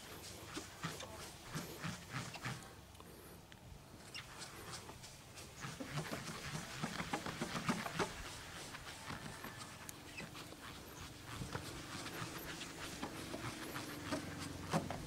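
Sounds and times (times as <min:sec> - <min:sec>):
sponge pad swishing on car panel: 0:04.4 - 0:15.0.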